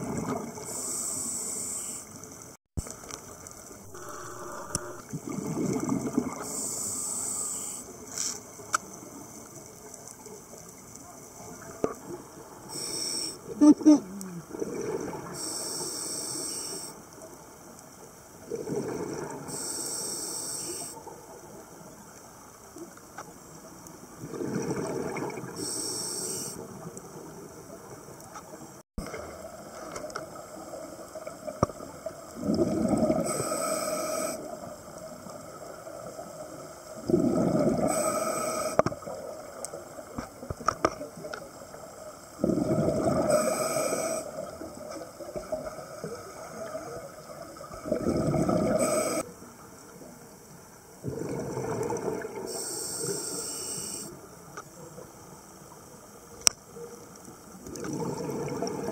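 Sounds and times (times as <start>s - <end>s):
low underwater hush: 0.0s - 17.3s, 24.1s - 56.0s
diver breathing through regulator: 0.6s - 2.0s, 33.1s - 34.4s, 37.1s - 38.8s, 42.4s - 44.4s, 48.0s - 49.2s, 52.4s - 54.2s.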